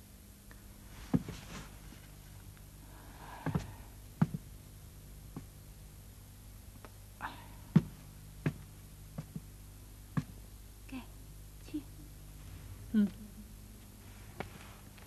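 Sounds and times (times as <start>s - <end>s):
faint low hum: 0.0s - 15.0s
footsteps: 1.0s - 2.2s, 13.8s - 15.0s.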